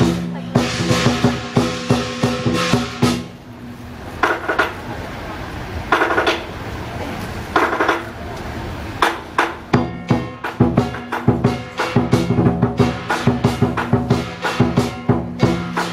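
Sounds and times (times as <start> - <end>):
drum beating fast: 0.0 - 3.4, 9.0 - 15.9.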